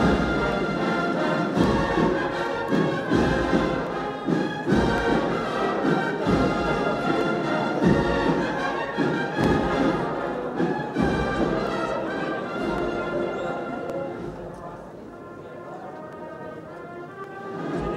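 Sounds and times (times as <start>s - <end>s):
low drum beat: 0.0s - 0.9s, 1.5s - 12.1s
brass band playing a march: 0.0s - 17.9s.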